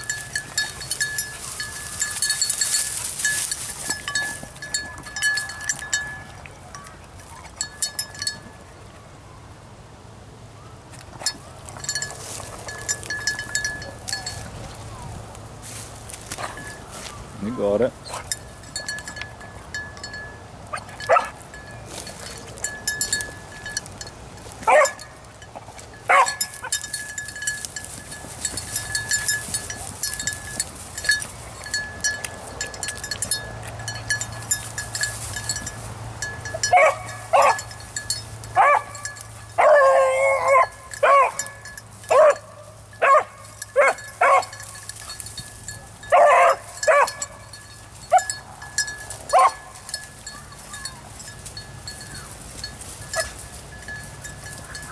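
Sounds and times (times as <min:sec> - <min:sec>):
dog barking: 0:21.1 - 0:21.3, 0:24.7 - 0:25.0, 0:26.1 - 0:26.4, 0:36.7 - 0:37.6, 0:38.6 - 0:39.0, 0:39.6 - 0:41.4, 0:42.1 - 0:42.4, 0:43.0 - 0:44.5, 0:46.1 - 0:47.2, 0:49.3 - 0:49.6.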